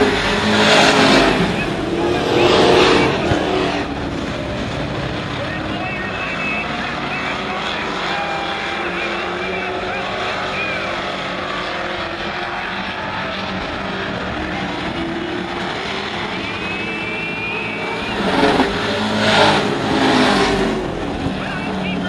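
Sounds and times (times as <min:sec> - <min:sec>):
truck passing close by: 0:00.0 - 0:05.8, 0:13.1 - 0:21.4
race truck engines running: 0:00.0 - 0:22.0.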